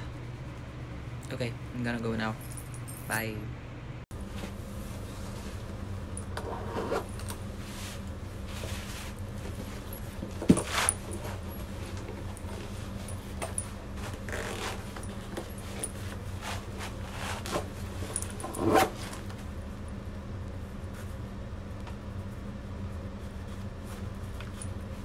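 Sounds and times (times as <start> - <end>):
steady low hum: 0.0 - 25.0
clothing rustling: 7.0 - 19.4.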